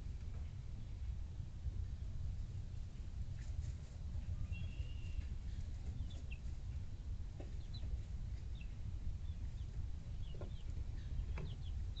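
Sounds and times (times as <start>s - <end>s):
chicks chirping and clucking: 3.0s - 12.0s.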